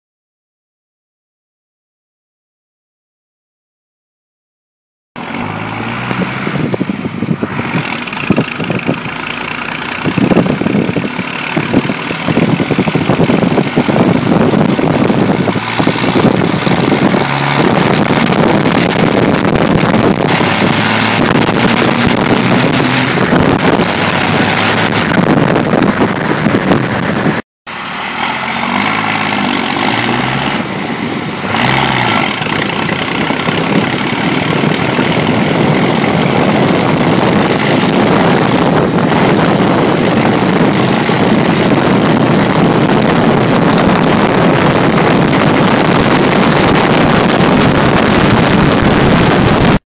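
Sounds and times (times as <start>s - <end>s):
diesel truck engine revving: 5.2s - 49.8s
wind and road noise: 5.2s - 49.8s.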